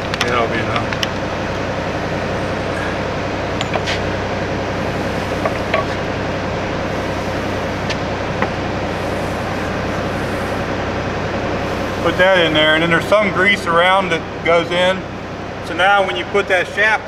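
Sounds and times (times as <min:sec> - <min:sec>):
machine drone: 0:00.0 - 0:17.0.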